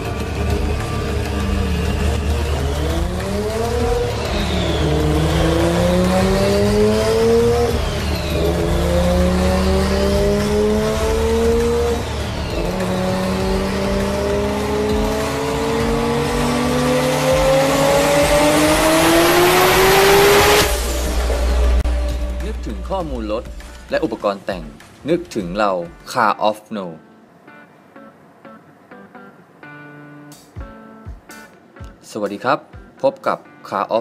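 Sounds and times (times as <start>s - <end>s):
sports car engine accelerating: 0.0s - 23.9s.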